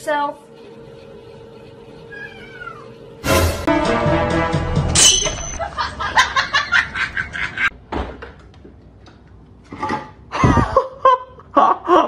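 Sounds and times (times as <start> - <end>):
person laughing: 10.3 - 12.0.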